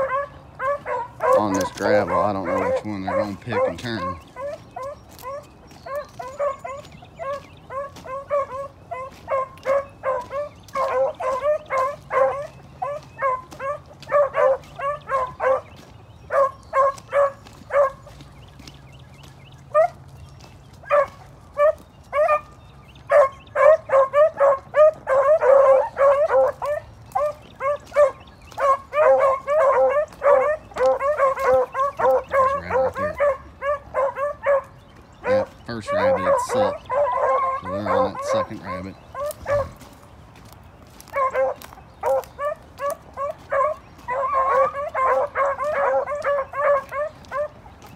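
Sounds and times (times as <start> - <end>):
dogs baying in rapid barks: 0.0 - 47.9.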